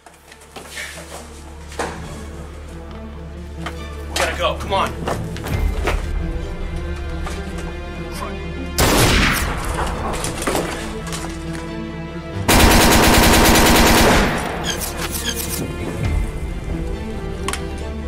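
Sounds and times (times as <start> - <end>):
background music: 0.0 - 18.0
loud gunshot: 8.8 - 9.7
automatic gunfire burst: 12.5 - 14.7.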